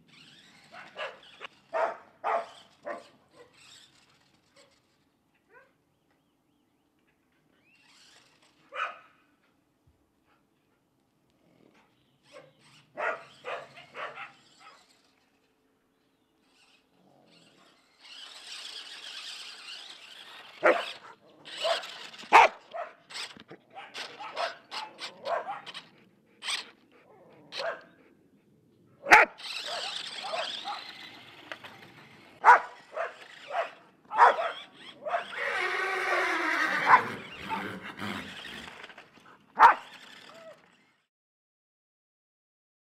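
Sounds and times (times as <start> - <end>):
toy car electric motor whirring: 0.0 - 5.2, 7.5 - 8.8, 12.2 - 15.6, 16.4 - 26.9, 29.3 - 41.1
dog barking: 0.7 - 3.5, 8.7 - 9.1, 12.3 - 14.8, 20.6 - 23.0, 23.7 - 25.8, 27.5 - 27.9, 29.0 - 30.9, 32.4 - 35.4, 36.8 - 37.7, 39.6 - 39.9.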